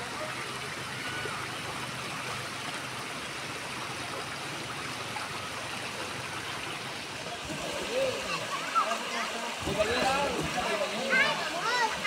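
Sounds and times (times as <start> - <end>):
river babbling over stones: 0.0 - 12.0.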